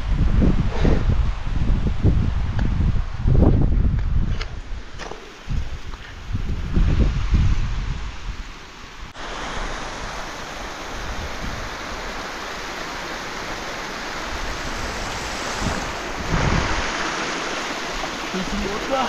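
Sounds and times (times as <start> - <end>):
steady rushing noise: 9.1 - 19.0.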